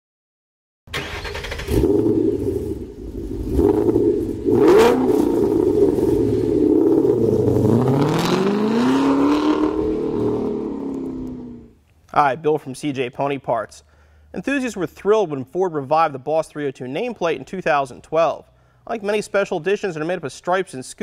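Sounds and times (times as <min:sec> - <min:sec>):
car engine revving: 0:01.0 - 0:11.8.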